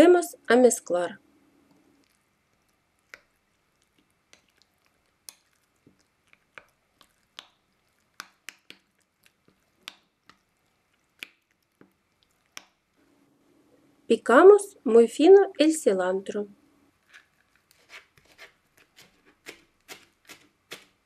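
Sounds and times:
wet squelches of stirring: 1.3 - 14.1, 16.8 - 21.0.

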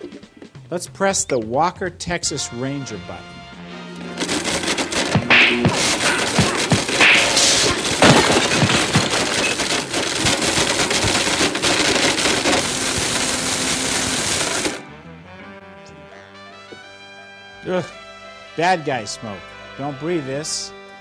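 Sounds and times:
plastic clattering in blender: 4.0 - 14.8
blender motor: 10.0 - 14.8
quiet music: 14.8 - 21.0.

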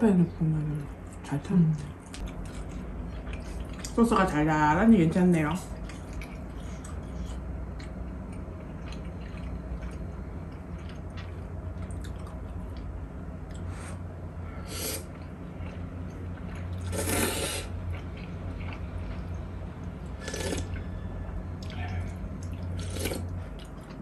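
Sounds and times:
wet mouth eating sounds: 5.7 - 14.0, 14.9 - 19.4, 20.1 - 21.0, 21.6 - 24.0
slurping noodles: 16.8 - 17.7, 20.2 - 20.8, 22.8 - 23.3.

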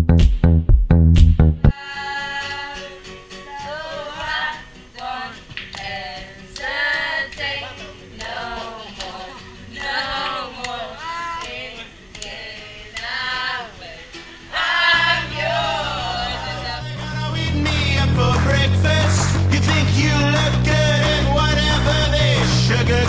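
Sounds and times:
recorded song with heavy bass: 0.0 - 1.8, 15.0 - 23.0
women singing together: 1.7 - 17.1.

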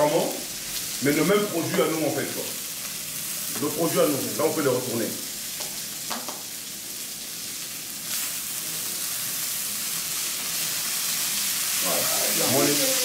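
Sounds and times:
oil sizzling in a frying pan: 0.0 - 13.0
wooden chopsticks tapping: 5.6 - 6.4.

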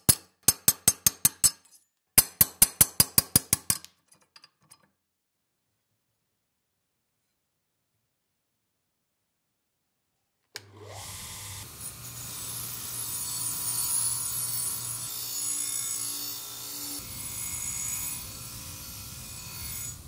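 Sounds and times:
grinder motor humming: 10.6 - 20.0
wire wheel scratching metal blade: 11.2 - 20.0.

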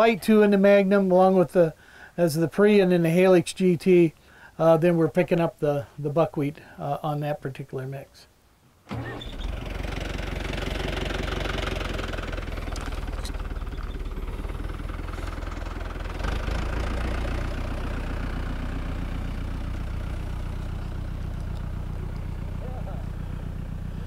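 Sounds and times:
tractor engine running: 8.9 - 24.0.

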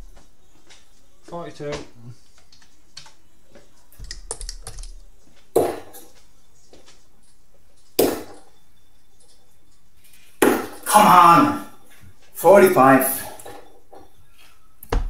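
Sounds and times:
computer keys clicking: 4.0 - 5.0.

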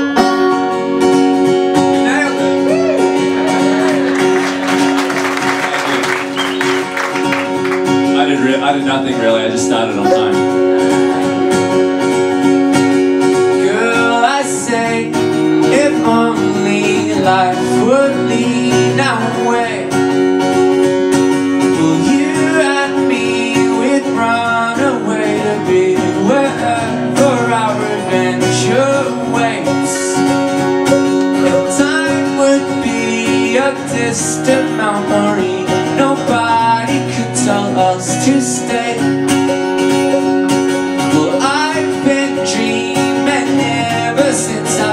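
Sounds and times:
banjo: 0.0 - 44.9
mandolin: 0.0 - 44.9
strummed acoustic guitar: 0.0 - 44.9
man singing: 8.0 - 10.7, 13.3 - 20.4, 21.4 - 30.6, 31.4 - 39.7, 40.8 - 44.9.

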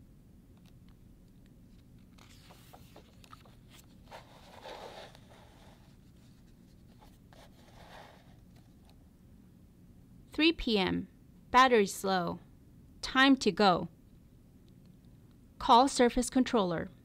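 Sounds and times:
paper pages rustling: 1.7 - 8.9.

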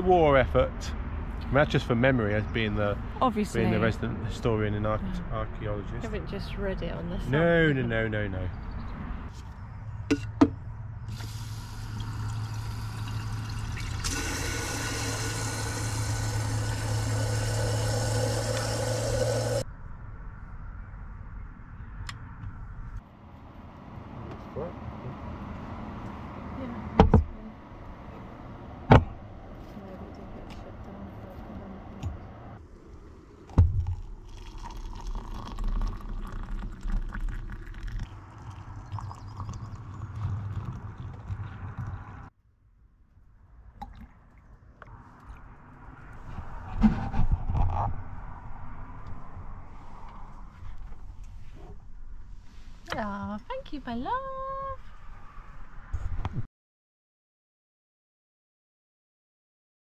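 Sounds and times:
water pump hum: 11.1 - 19.6
water running into a kettle: 11.1 - 19.6
water pouring into a mug: 11.2 - 19.6, 32.9 - 42.2.

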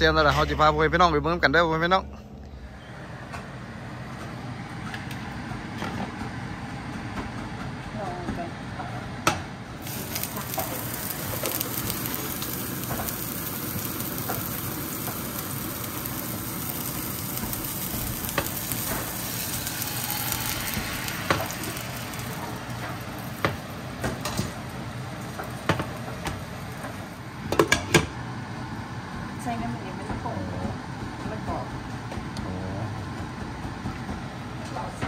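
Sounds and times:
oil sizzling in a frying pan: 9.8 - 28.2.

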